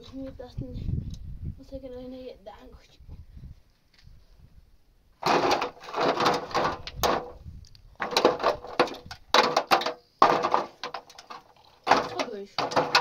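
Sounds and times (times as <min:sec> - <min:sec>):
stones into metal basin: 0:05.2 - 0:07.4, 0:08.0 - 0:13.0.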